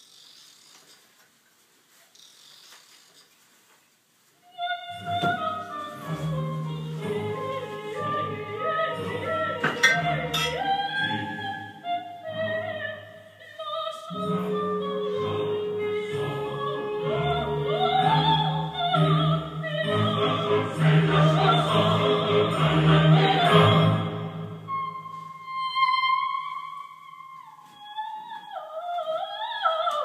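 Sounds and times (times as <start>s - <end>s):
operatic singing voice: 4.6s - 26.5s
orchestra playing: 5.5s - 11.8s, 14.1s - 24.7s.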